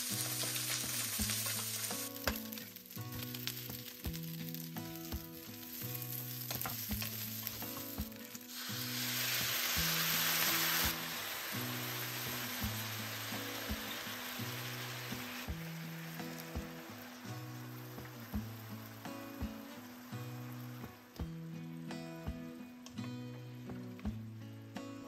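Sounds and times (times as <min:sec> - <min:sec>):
food sizzling in a pan: 0:00.0 - 0:22.0
utensil clicking in a pan: 0:00.2 - 0:02.6.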